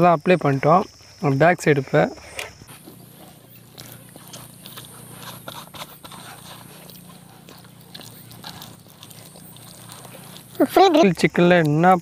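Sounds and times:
hands squelching wet paste: 2.7s - 12.0s.

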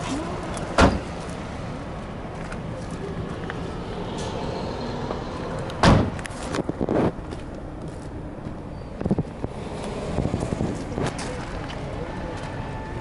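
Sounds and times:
car back door clunk: 0.7s - 1.1s, 5.8s - 6.2s
car door shutting: 0.7s - 1.1s, 5.8s - 6.2s.

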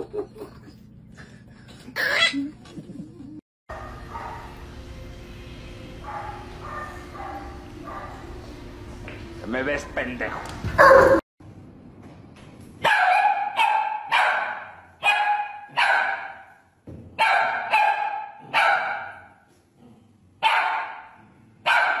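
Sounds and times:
small dog barking: 12.8s - 16.4s, 17.2s - 19.2s, 20.4s - 21.1s.

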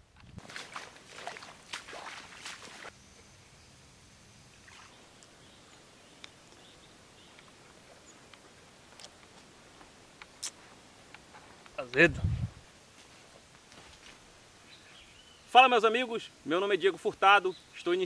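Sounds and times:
footstep splashing in water: 0.4s - 2.9s.

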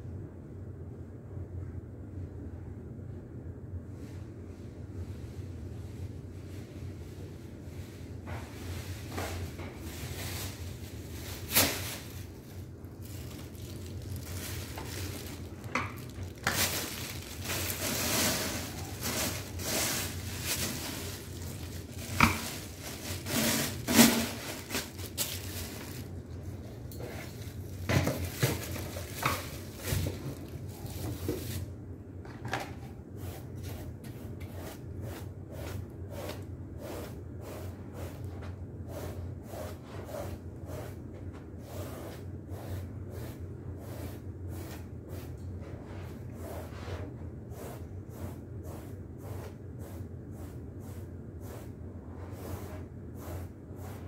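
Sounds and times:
plastic bag rustling: 8.7s - 31.7s.

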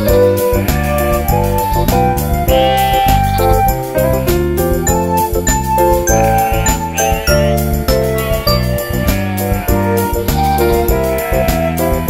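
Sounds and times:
tinkling background music: 0.0s - 12.0s
sheep bleating: 9.2s - 11.8s.

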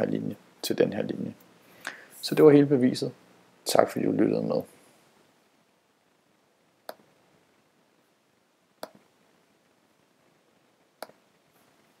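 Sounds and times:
faint room hiss: 0.0s - 12.0s
computer mouse clicks: 8.8s - 9.0s.

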